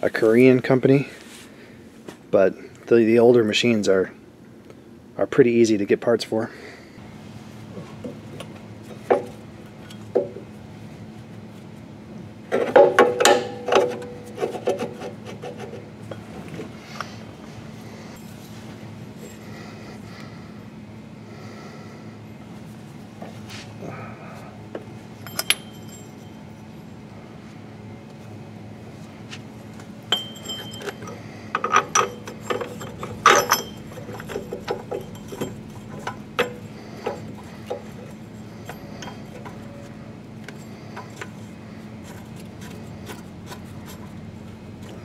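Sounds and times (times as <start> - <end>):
low steady hum: 0.0 - 45.0
metallic clinks of hand tools: 25.2 - 26.4, 30.1 - 39.8.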